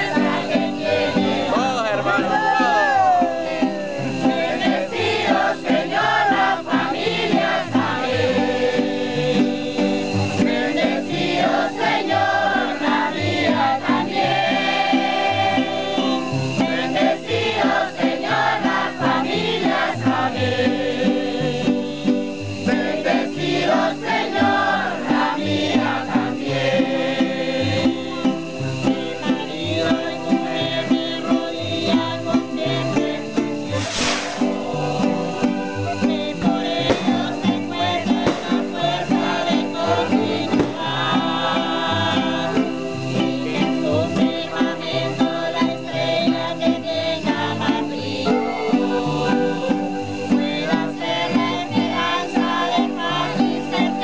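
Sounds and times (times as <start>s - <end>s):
man and crowd singing hymn: 0.0s - 54.0s
strummed acoustic guitar: 0.0s - 54.0s.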